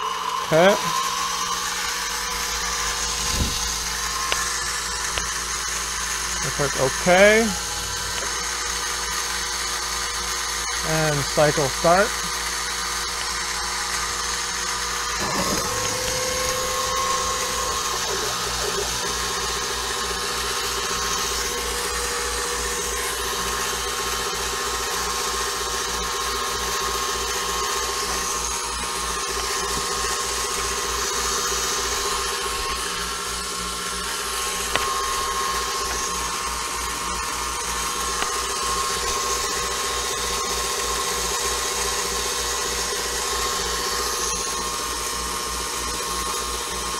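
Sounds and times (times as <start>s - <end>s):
milling machine spindle whine: 0.0s - 46.9s.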